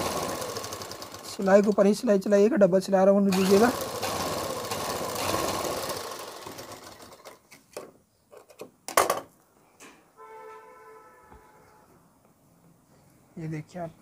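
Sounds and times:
sewing machine running: 0.0s - 2.0s, 3.3s - 7.4s.

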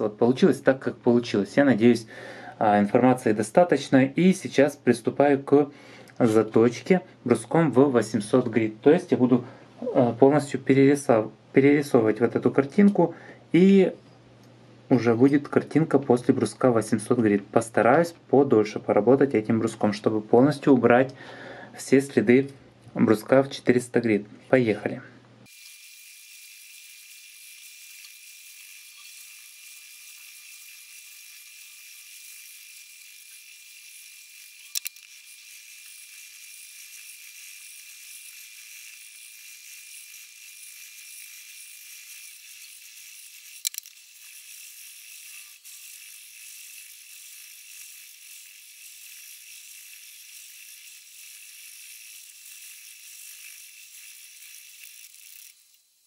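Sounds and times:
sharp click: 34.7s - 35.1s.

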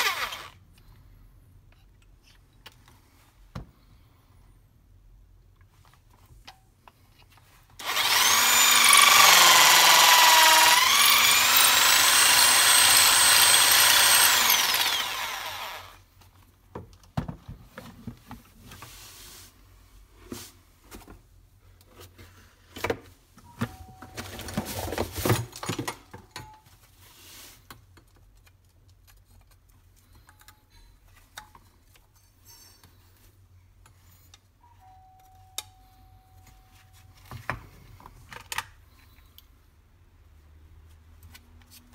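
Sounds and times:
electric drill grinding into marble: 0.0s - 0.6s, 7.8s - 16.0s.

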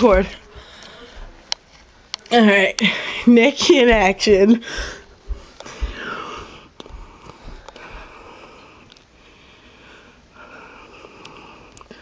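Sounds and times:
footsteps on carpet: 0.0s - 1.5s, 3.6s - 8.4s
low thumps: 3.7s - 8.2s.

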